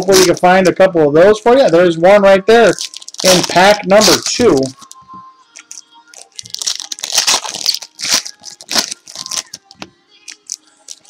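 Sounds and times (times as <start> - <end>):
card pack wrappers tearing: 0.0 - 0.5, 2.7 - 5.0, 5.6 - 11.0
cards being handled: 2.7 - 5.0.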